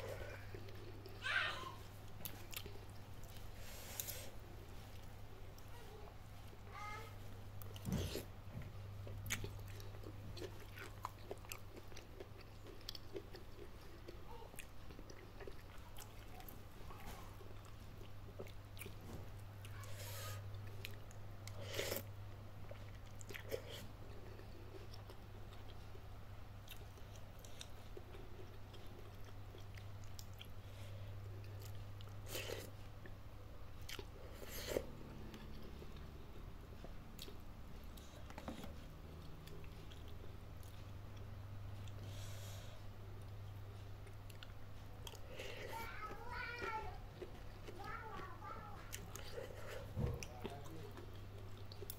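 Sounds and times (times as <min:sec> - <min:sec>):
chewing noodles: 0:02.0 - 0:04.3, 0:09.0 - 0:26.0, 0:26.6 - 0:33.2, 0:43.2 - 0:51.9.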